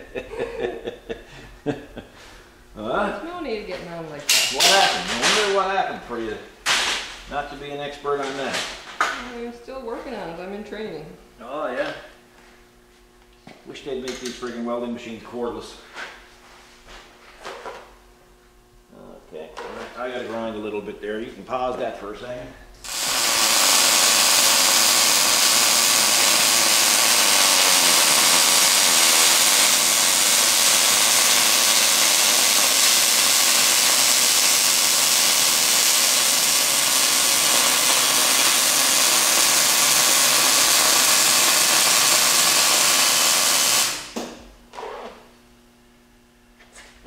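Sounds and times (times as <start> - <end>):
welding arc hissing: 4.2 - 5.7, 22.8 - 45.0.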